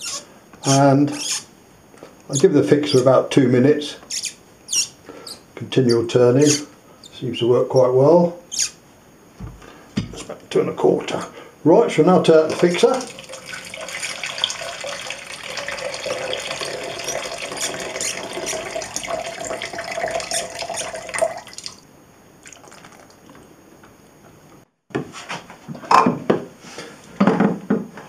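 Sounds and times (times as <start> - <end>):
liquid pouring into a jug: 12.5 - 21.8, 22.4 - 23.2.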